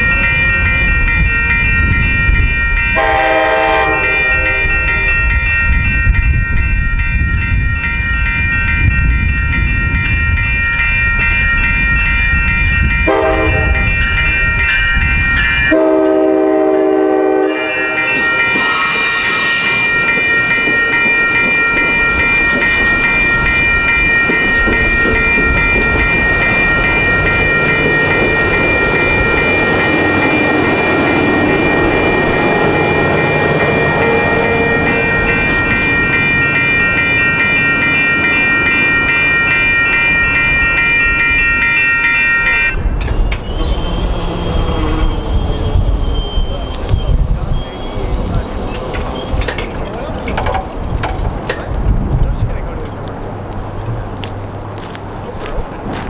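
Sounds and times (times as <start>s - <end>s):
railroad crossing bell ringing: 0.0s - 51.8s
train wheels on rails: 0.0s - 56.0s
train horn blast: 3.0s - 5.0s, 13.1s - 14.0s, 15.7s - 19.0s.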